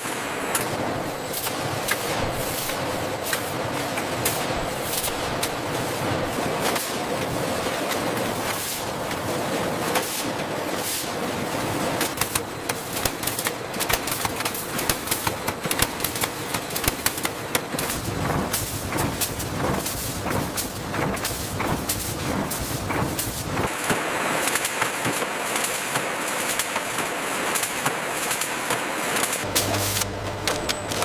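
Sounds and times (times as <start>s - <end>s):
packaging machinery hissing and clacking: 0.0s - 31.0s
fast clatter of sharp clicks: 12.0s - 29.5s.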